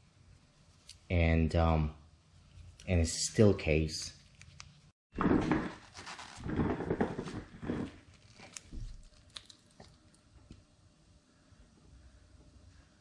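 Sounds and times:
wristwatch handling rubbing and rustling: 0:04.2 - 0:04.9, 0:05.8 - 0:10.0.

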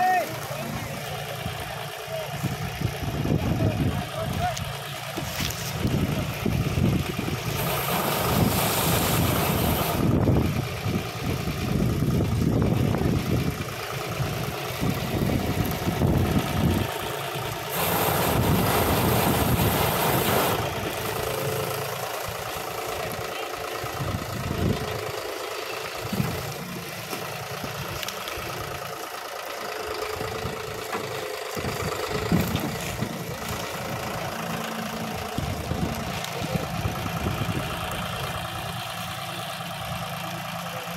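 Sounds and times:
tractor engine running: 0:00.0 - 0:40.9
harvester rushing through cane: 0:07.4 - 0:10.2, 0:17.6 - 0:22.6.

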